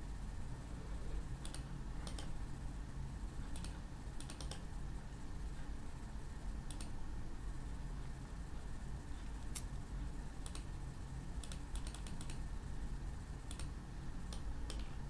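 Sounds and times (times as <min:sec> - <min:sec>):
steady low hum: 0:00.0 - 0:15.0
computer mouse clicking: 0:01.4 - 0:02.4, 0:03.5 - 0:04.7, 0:06.6 - 0:07.0, 0:10.4 - 0:10.8, 0:11.4 - 0:12.5, 0:13.4 - 0:15.0.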